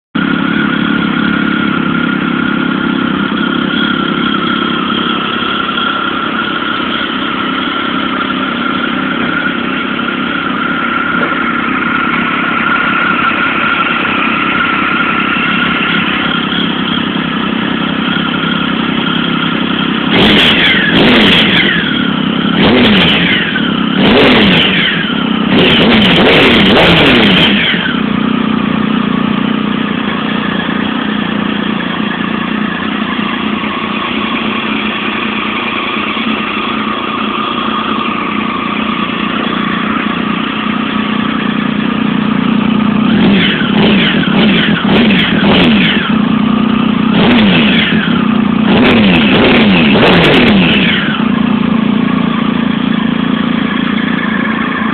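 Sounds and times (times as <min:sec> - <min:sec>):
motorcycle engine idling and revving: 0:00.1 - 0:54.9.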